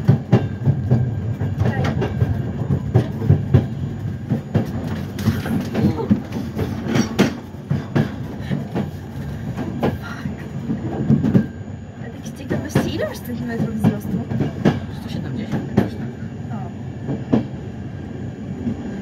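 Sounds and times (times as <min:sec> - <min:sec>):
train wheel clatter: 0:00.0 - 0:17.6
train rumble: 0:00.0 - 0:19.0.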